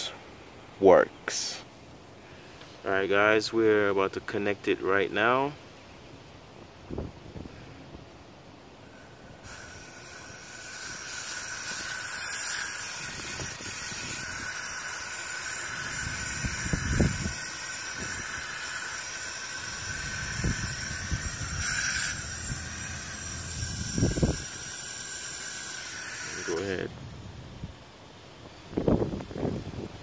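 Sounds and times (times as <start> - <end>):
aerosol can hissing: 8.8 - 26.8.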